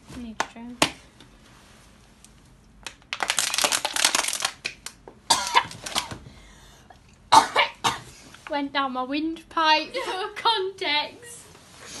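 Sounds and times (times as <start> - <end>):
girl coughing and spluttering: 5.3 - 6.2, 7.3 - 8.1.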